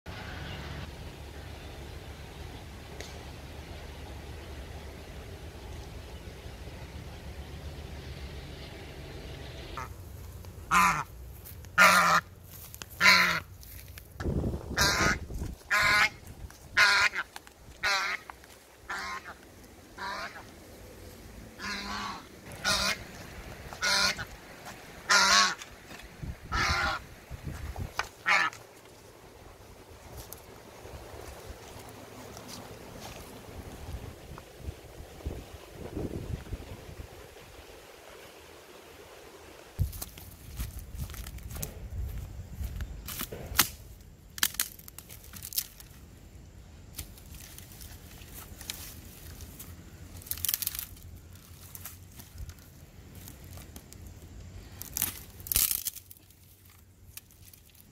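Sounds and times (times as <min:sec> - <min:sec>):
goose honking: 0:10.7 - 0:11.1, 0:11.8 - 0:12.3, 0:13.0 - 0:13.5, 0:14.8 - 0:18.3, 0:18.9 - 0:19.4, 0:20.0 - 0:20.5, 0:21.6 - 0:24.4, 0:25.0 - 0:25.7, 0:26.5 - 0:27.1, 0:28.2 - 0:28.6
dry sticks cracking and snapping: 0:17.2 - 0:18.6, 0:39.8 - 0:41.8, 0:43.0 - 0:46.0, 0:46.9 - 0:57.9.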